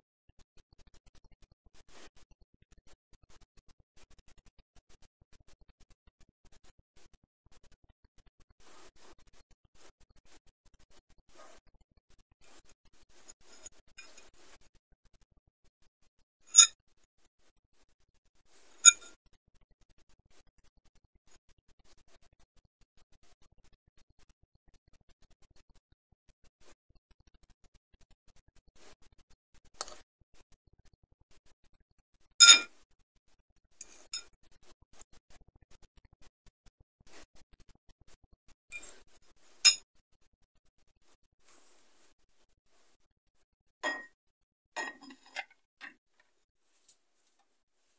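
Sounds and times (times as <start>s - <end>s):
fork scraping ceramic bowl: 18.8s - 19.1s, 32.4s - 32.7s, 44.8s - 45.4s
fork clinking on bowl: 32.4s - 32.7s, 43.8s - 44.1s, 44.8s - 45.4s.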